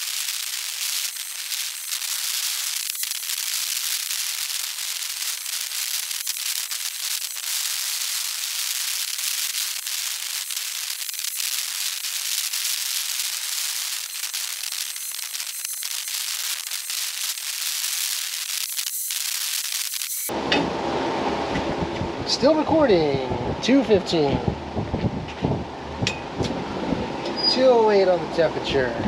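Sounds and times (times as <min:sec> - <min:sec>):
sharp clicks and pops: 0:00.0 - 0:20.3
steady high hiss: 0:00.0 - 0:20.3.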